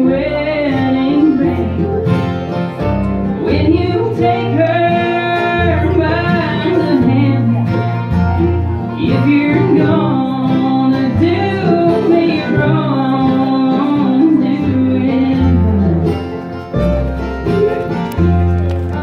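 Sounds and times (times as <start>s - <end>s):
woman singing lead: 0.0s - 2.6s, 3.2s - 16.4s
bluegrass band playing: 0.0s - 19.0s.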